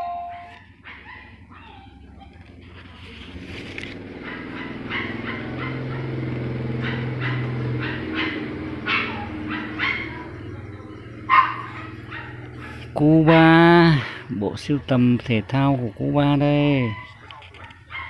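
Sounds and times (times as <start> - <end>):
steady low hum: 0.0 - 16.4
dog barking and yapping: 0.3 - 14.3, 16.7 - 18.0.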